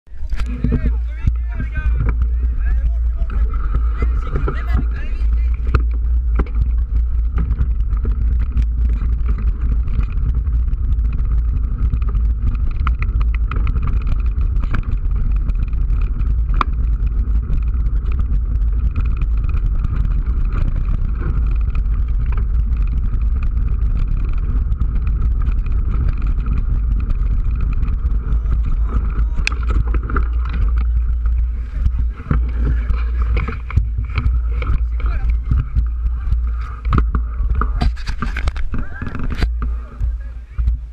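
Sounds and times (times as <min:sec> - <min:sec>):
wind and trail rumble: 0:00.0 - 0:40.9
bike rattling and clicking: 0:00.1 - 0:40.9.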